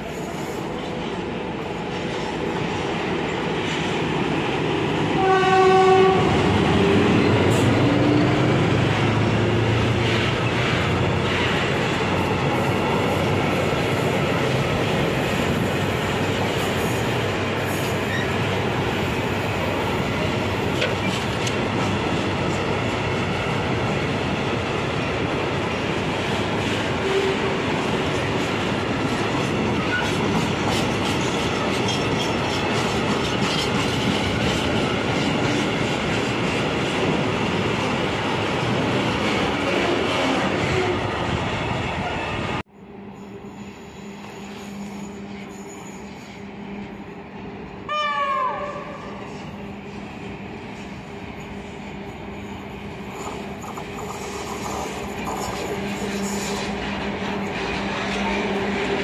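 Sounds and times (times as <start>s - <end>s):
diesel locomotive engine: 0.0s - 59.0s
train horn blast: 5.2s - 6.4s, 47.9s - 49.2s.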